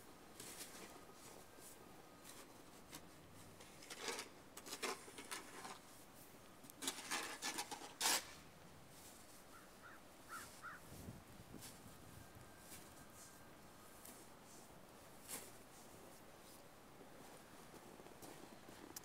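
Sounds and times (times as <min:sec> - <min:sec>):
snow shovel scraping snow: 0:06.8 - 0:09.4, 0:14.0 - 0:16.6.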